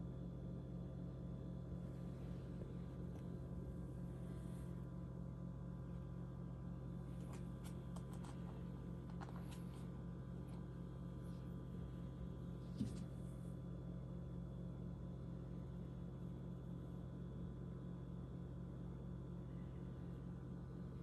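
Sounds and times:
low electrical hum: 0.0 - 21.0.

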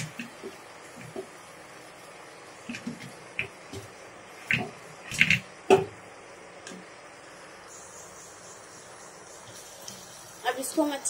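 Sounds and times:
knocks and soft thuds in pan: 0.0 - 1.4, 2.7 - 6.0
faint steady hiss: 0.0 - 11.0.

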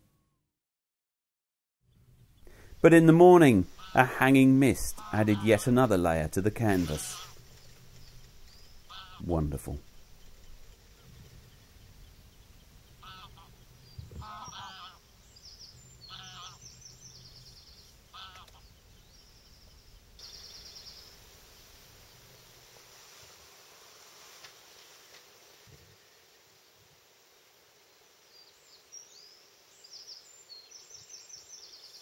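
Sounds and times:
geese honking: 3.0 - 7.5, 8.8 - 9.4, 12.8 - 15.2, 16.0 - 16.8, 17.8 - 18.8.

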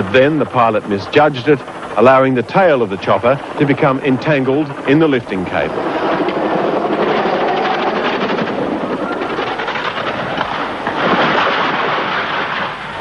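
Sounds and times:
helicopter rotor and engine: 0.0 - 13.0.

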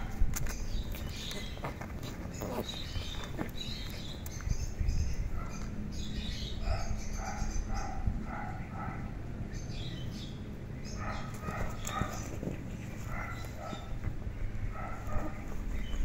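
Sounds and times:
cats scuffling and knocking: 11.4 - 14.3.

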